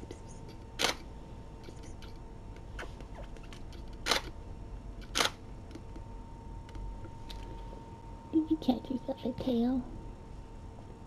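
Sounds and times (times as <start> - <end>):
faint steady hum: 0.0 - 11.0
camera shutter firing: 4.0 - 4.3, 5.1 - 5.4.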